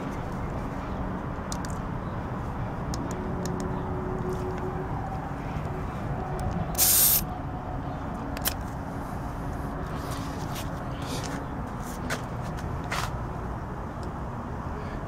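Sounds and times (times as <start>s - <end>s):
steady low rumble: 0.0s - 15.0s
air hissing from tyre valve: 6.7s - 7.3s.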